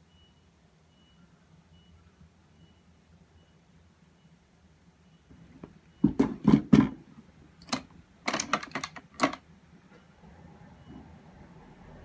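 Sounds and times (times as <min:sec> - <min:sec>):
makeup tools knocking and clicking: 0:07.6 - 0:09.4.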